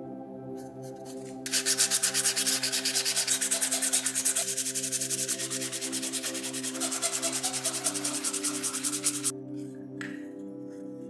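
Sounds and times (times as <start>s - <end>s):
soft background music: 0.0s - 11.0s
sanding back and forth: 0.9s - 9.3s.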